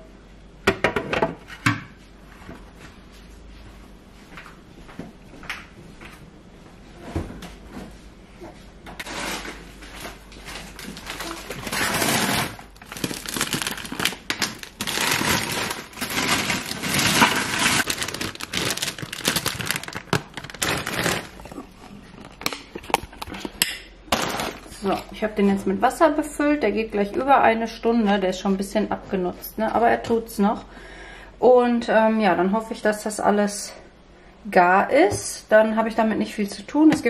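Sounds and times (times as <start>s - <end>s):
plastic bag crinkling: 9.1s - 25.0s.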